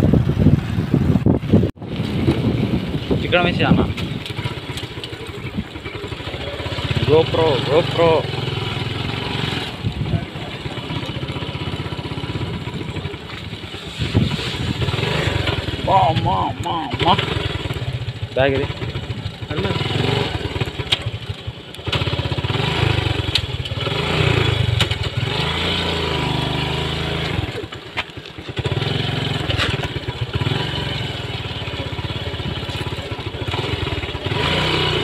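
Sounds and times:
wind on microphone: 0.0 - 6.0, 9.2 - 10.8, 12.2 - 16.6
motorcycle engine revving: 0.0 - 35.0.

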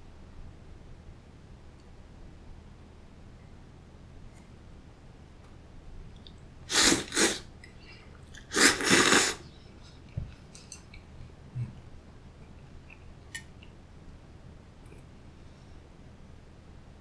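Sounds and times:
noodles slurping: 6.7 - 7.4, 8.4 - 9.4.

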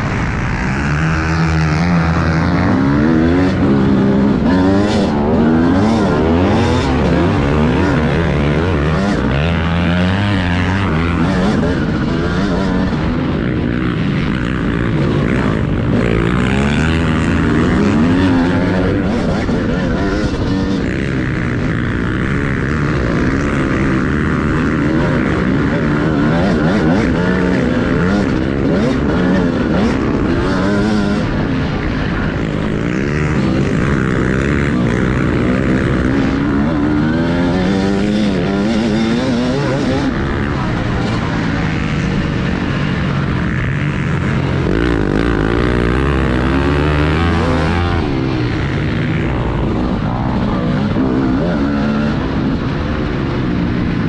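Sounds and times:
motocross bike engine revving: 0.0 - 54.0.

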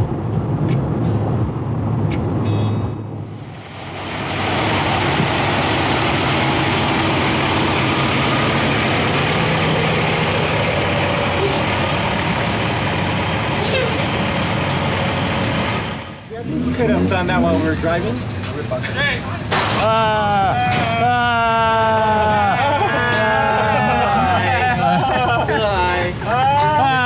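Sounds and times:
road noise inside car: 0.0 - 20.8
diesel truck engine rumbling: 0.0 - 27.0.

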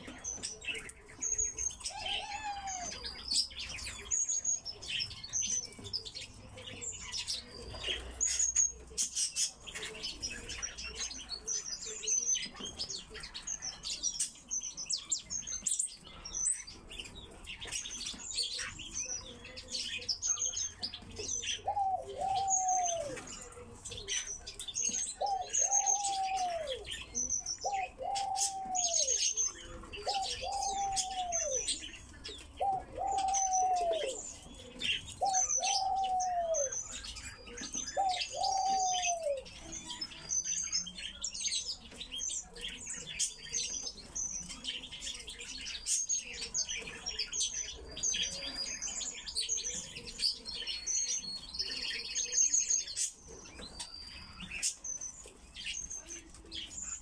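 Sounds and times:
birds chirping and twittering: 0.0 - 57.0.

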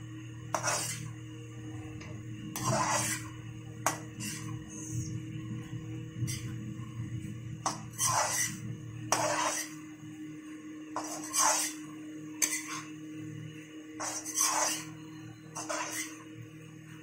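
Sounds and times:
metal spatula scraping a pan: 0.5 - 1.2, 2.5 - 4.9, 6.2 - 6.5, 7.7 - 9.8, 11.0 - 13.0, 14.0 - 16.3.

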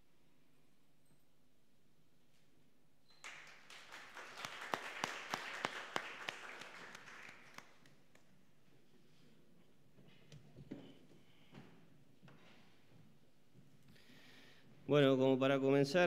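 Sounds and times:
group of people clapping: 3.1 - 8.4.

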